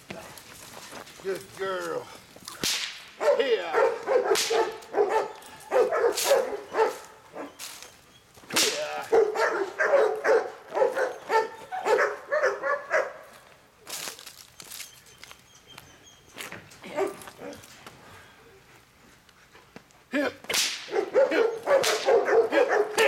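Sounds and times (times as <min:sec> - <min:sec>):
dog barking: 0:03.2 - 0:07.6, 0:09.0 - 0:13.2, 0:16.9 - 0:17.6, 0:20.9 - 0:23.0.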